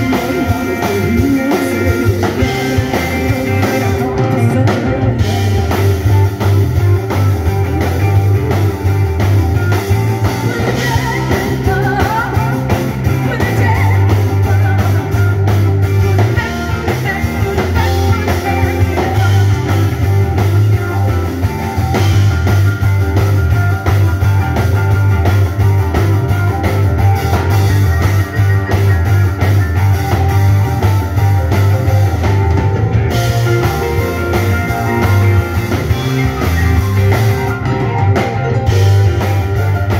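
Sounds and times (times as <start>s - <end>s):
blues-rock band playing: 0.0s - 39.9s
woman singing: 10.5s - 15.0s.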